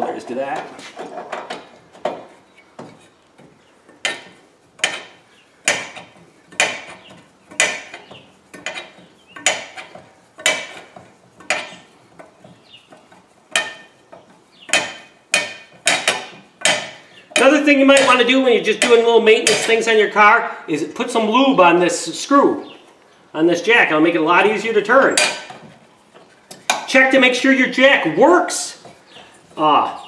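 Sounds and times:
scissor jack metallic clanks: 3.9s - 18.2s, 25.0s - 25.7s.

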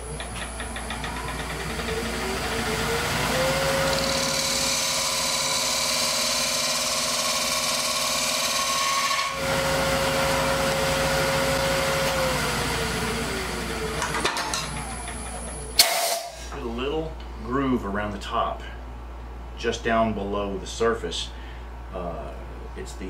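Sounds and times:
wood lathe motor hum: 0.0s - 15.4s
hollowing tool scraping wood: 3.5s - 9.4s.

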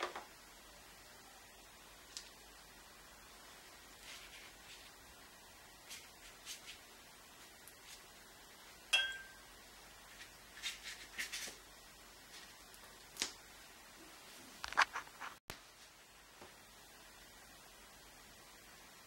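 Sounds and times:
brush stroking across paper: 3.9s - 5.1s, 5.7s - 8.2s, 10.0s - 11.6s.

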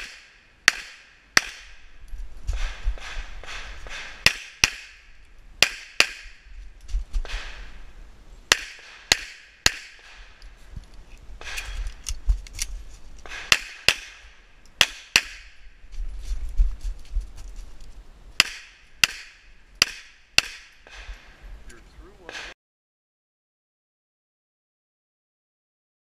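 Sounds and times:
pistol shots in pairs: 0.0s - 1.8s, 2.5s - 6.4s, 8.5s - 10.4s, 13.2s - 15.5s, 18.4s - 21.1s.

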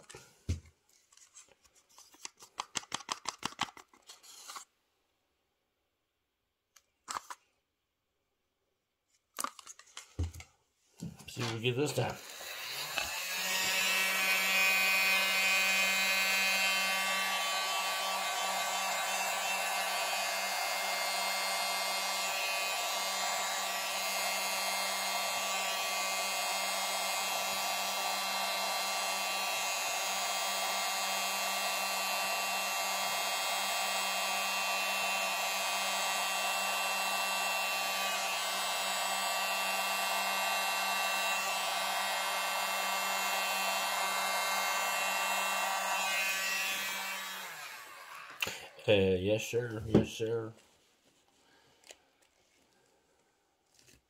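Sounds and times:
handheld blower running: 11.4s - 48.9s.

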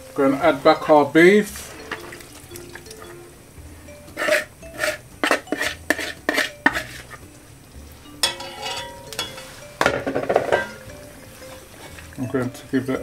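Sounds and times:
spoons clinking on metal pot: 4.1s - 7.2s, 8.1s - 10.9s
wooden spoon scraping bowl: 4.2s - 7.2s.

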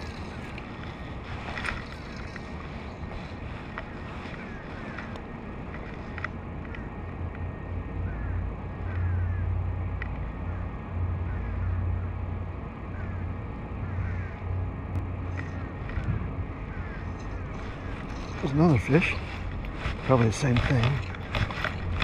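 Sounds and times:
wind rumbling on microphone: 0.0s - 22.0s.

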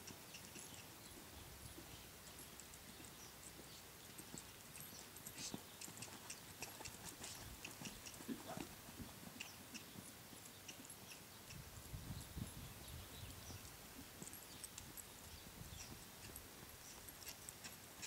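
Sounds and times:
hoofbeats on soft sand: 2.9s - 10.1s.

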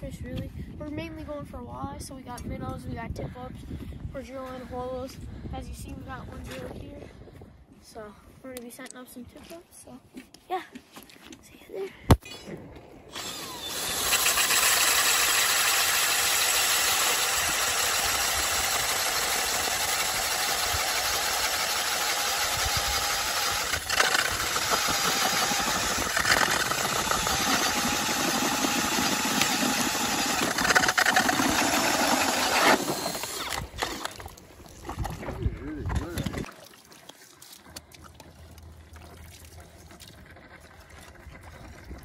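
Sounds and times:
powered ice auger boring: 13.1s - 34.3s.

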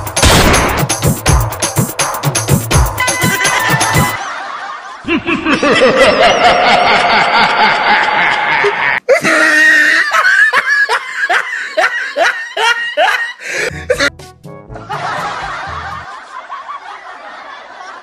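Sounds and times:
rhythmic ha-ha laughter: 3.0s - 18.0s
dense layered laughter: 3.3s - 14.1s, 14.8s - 18.0s.

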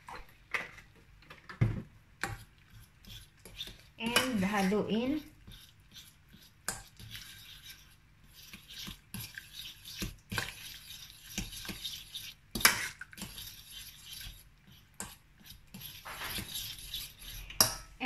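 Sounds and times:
spoon scraping and clinking saucepan: 3.0s - 14.4s, 15.0s - 17.9s.

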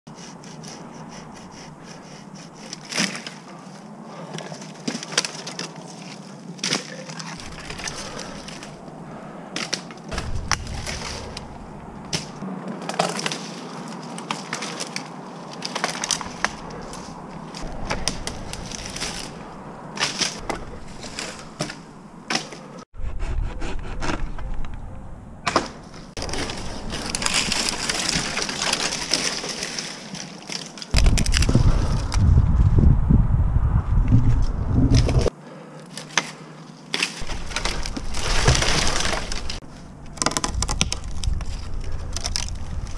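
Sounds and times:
pruning saws cutting branches: 0.1s - 3.4s, 9.6s - 22.7s, 35.9s - 42.9s
dead wood cracking: 2.4s - 22.6s, 25.5s - 32.3s, 35.9s - 42.9s
loud low rumble: 10.1s - 12.5s, 16.2s - 21.6s, 31.0s - 35.3s, 37.3s - 42.9s.

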